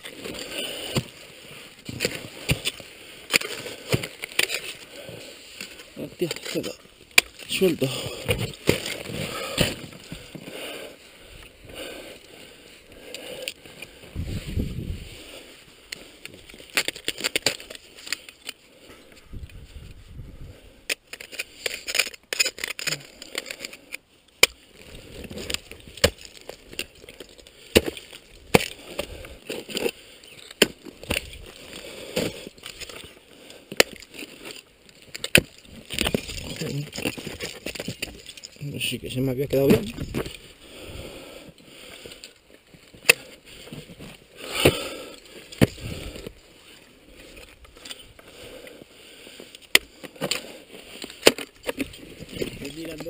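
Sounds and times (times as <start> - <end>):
ice scraping and crunching: 0.0 - 53.0
ice axes striking ice: 1.8 - 4.8, 24.4 - 38.4, 44.4 - 46.3, 49.6 - 53.0.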